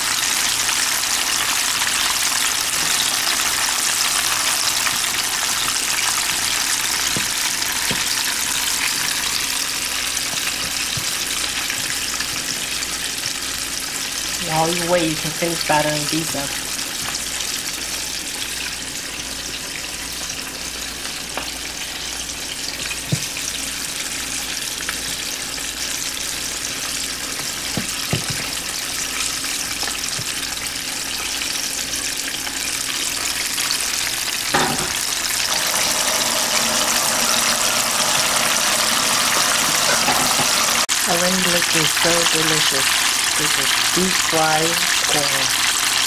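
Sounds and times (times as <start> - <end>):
deep-frying sizzle: 0.0 - 46.0.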